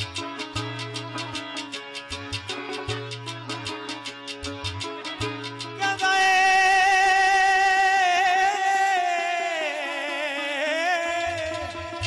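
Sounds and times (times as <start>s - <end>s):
man singing long high note: 5.8s - 12.0s.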